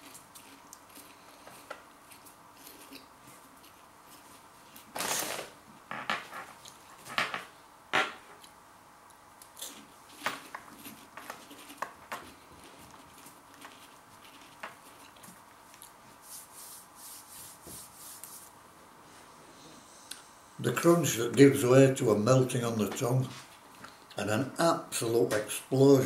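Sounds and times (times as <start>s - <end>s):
chewing: 0.0s - 4.4s, 9.4s - 16.0s.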